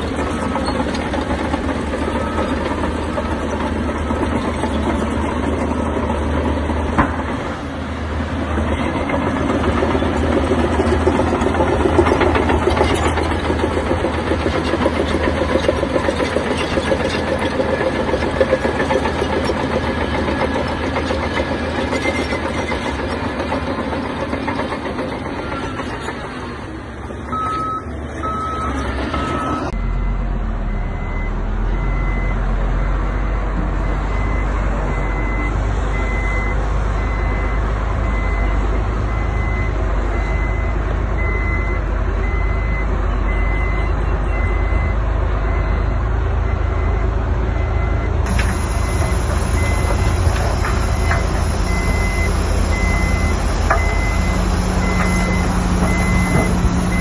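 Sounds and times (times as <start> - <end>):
diesel construction machinery engine: 0.0 - 57.0
backup alarm beeping: 47.6 - 57.0.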